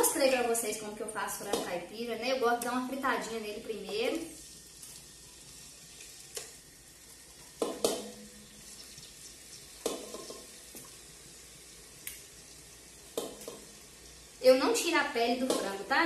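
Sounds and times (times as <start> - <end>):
chicken sizzling in a pan: 0.0 - 16.0
knocks and clatters in a pan: 7.5 - 8.2, 9.7 - 10.9, 13.1 - 13.7.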